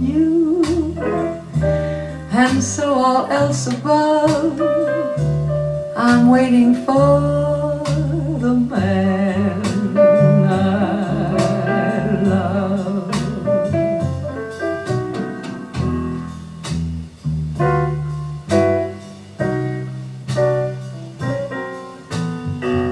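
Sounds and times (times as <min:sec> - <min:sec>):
woman singing jazz with vibrato: 0:00.0 - 0:14.6
bass line: 0:00.0 - 0:22.9.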